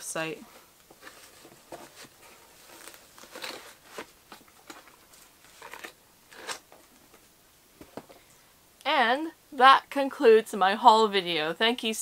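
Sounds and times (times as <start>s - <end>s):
rustling of packaged merchandise: 0.2s - 8.2s.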